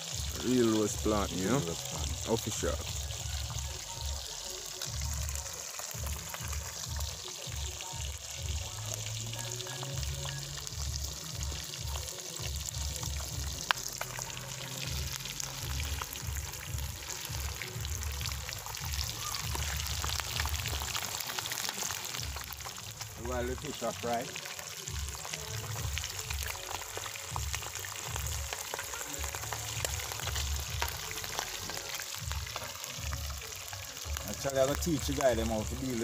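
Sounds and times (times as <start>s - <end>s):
fish sizzling in hot oil: 0.0s - 36.0s
oil popping: 0.0s - 36.0s
music bass line: 0.2s - 21.3s, 29.2s - 36.0s.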